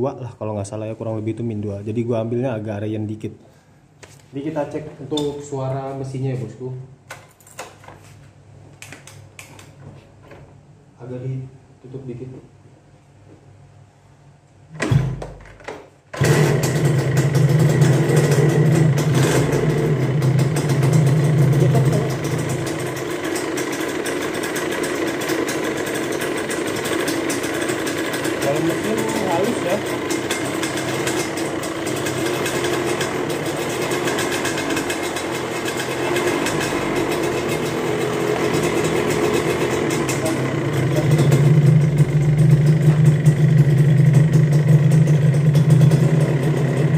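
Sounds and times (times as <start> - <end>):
motorcycle engine starting and running: 16.1 - 46.9.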